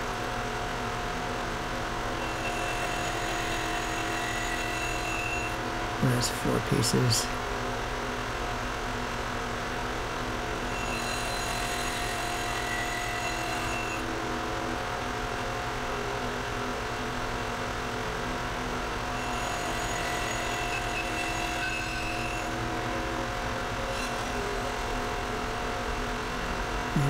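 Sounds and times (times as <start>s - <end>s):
band saw running: 2.2s - 5.6s, 10.6s - 14.0s, 19.1s - 22.6s, 23.6s - 25.6s.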